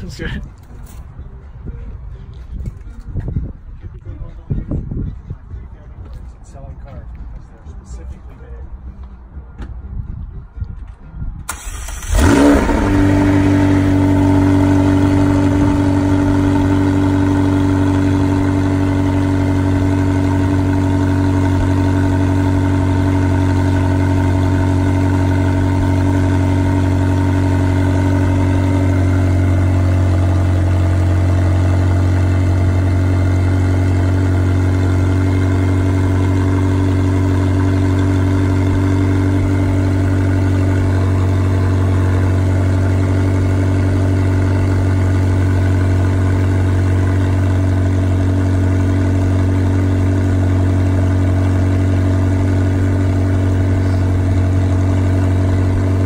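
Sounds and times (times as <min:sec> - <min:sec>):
sports car engine idling: 0:11.5 - 0:56.0.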